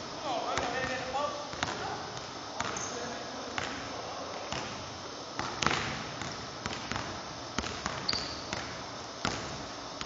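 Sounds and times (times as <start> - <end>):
basketball bouncing on hardwood: 0.6 - 2.8, 5.4 - 9.6
short high squeak: 8.1 - 8.5.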